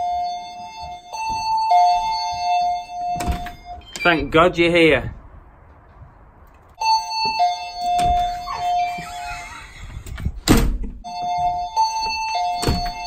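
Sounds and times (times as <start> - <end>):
door opening thump: 7.9 - 9.2, 10.0 - 11.0, 12.6 - 13.0
two-note doorbell chime: 11.1 - 13.0.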